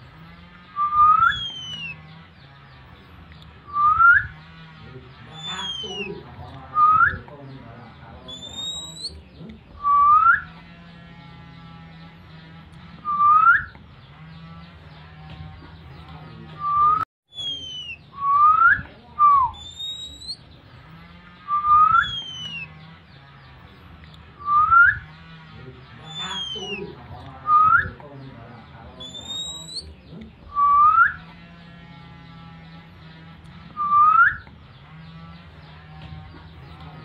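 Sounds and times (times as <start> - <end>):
low hum: 0.0 - 37.0
bird whistling upward note: 0.8 - 2.0, 3.7 - 4.4, 13.0 - 13.8, 16.6 - 20.4, 21.5 - 22.7, 24.4 - 25.1, 30.6 - 31.2, 33.8 - 34.5
high falling chirps: 0.8 - 2.1, 21.5 - 22.8.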